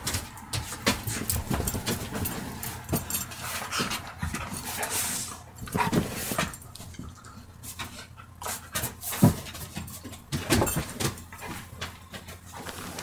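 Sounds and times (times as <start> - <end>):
dogs panting: 0.0 - 12.8.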